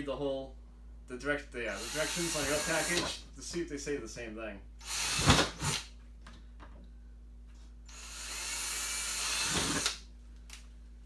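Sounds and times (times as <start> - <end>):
cordless drill boring plastic: 1.8 - 3.2, 7.9 - 10.0.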